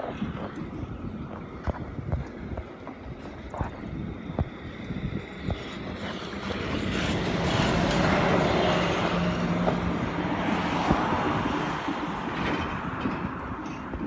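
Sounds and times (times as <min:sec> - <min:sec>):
diesel locomotive engine humming: 0:00.0 - 0:14.0.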